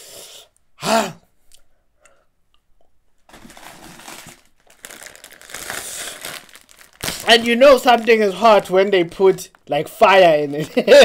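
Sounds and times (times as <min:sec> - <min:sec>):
foil chip packet crinkling: 0:03.3 - 0:10.1.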